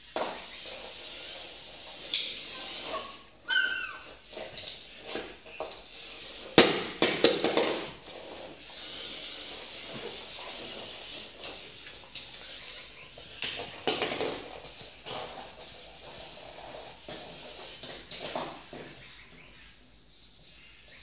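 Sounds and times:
knocks and slaps on laminate floor: 6.6 - 8.1.

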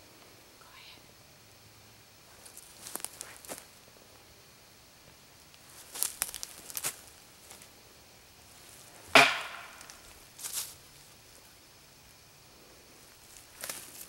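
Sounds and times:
wood knocking against tree: 9.1 - 10.0.

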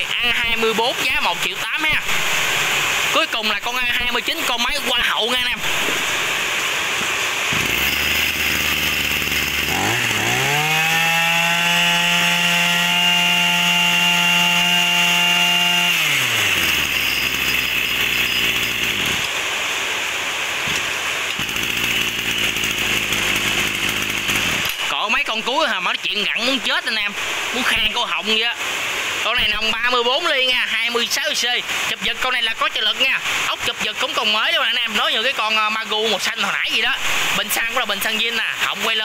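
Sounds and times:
brush cutter engine revving: 5.4 - 19.4, 20.8 - 25.0.

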